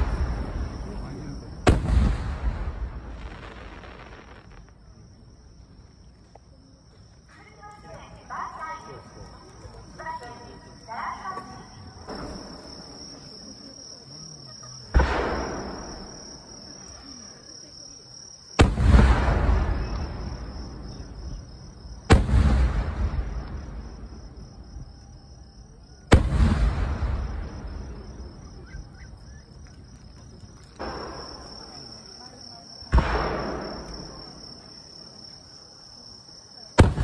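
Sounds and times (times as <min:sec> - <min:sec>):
firework booms with rolling echo: 0:00.0 - 0:05.2, 0:14.8 - 0:16.9, 0:18.4 - 0:25.0, 0:26.0 - 0:28.9, 0:30.8 - 0:32.1, 0:32.7 - 0:34.8, 0:36.7 - 0:37.0
crickets chirring: 0:00.0 - 0:37.0.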